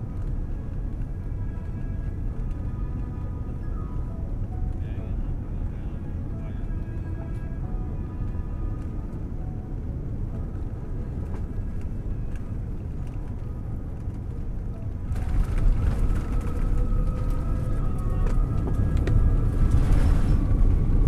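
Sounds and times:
airliner cabin engine rumble: 0.0s - 21.0s.

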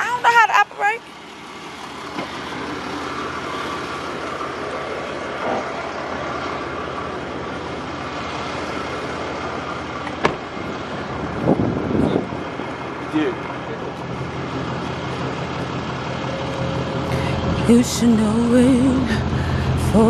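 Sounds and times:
road traffic noise: 0.0s - 20.0s
vehicle engine running: 0.0s - 20.0s.

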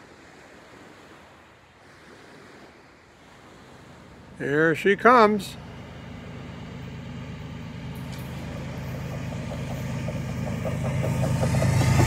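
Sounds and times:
locomotive engine rumble: 3.9s - 12.0s.

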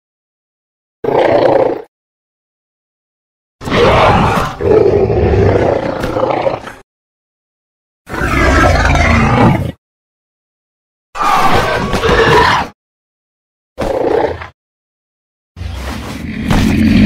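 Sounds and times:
dinosaur roar: 3.6s - 6.8s, 8.1s - 9.8s, 11.2s - 12.7s, 16.1s - 17.0s.

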